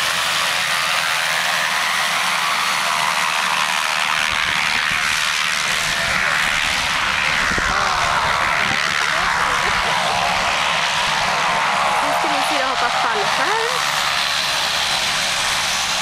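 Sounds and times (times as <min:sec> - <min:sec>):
propeller plane engine running: 0:00.0 - 0:16.0
irregular low rumbling: 0:04.3 - 0:12.0.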